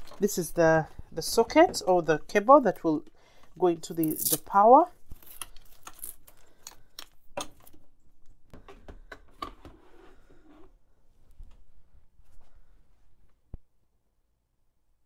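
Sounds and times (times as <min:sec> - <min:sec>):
handling clicks and rustling: 0:00.0 - 0:02.0, 0:02.7 - 0:08.7.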